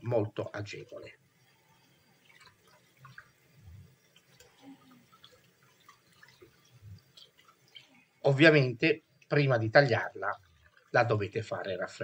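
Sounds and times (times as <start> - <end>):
water dripping and splashing: 0.0 - 12.0.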